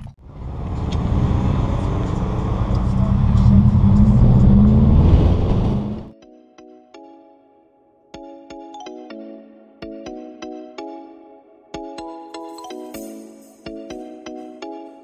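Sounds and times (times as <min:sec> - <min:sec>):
car engine and exhaust drone: 0:00.0 - 0:06.1.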